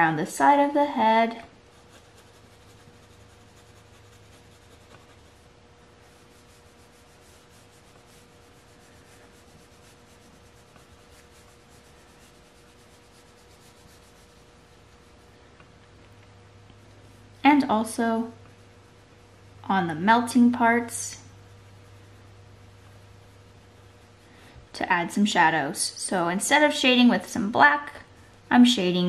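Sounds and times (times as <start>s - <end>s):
low steady hum: 0.0s - 29.0s
pencil scratching on paper: 1.6s - 15.3s.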